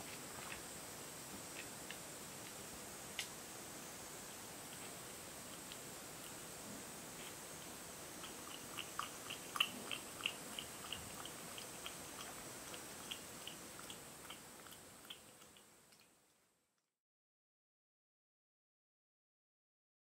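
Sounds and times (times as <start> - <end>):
cat lapping milk: 8.2 - 16.2.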